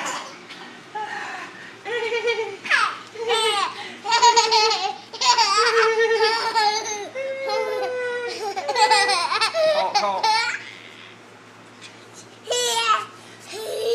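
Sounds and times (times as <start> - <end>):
toddler laughing: 1.9 - 11.1, 12.5 - 13.9.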